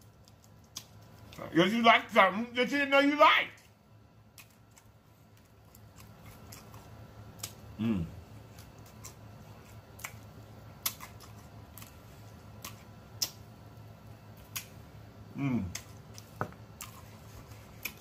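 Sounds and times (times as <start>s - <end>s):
person humming mmm: 7.8s - 8.2s, 15.3s - 15.8s.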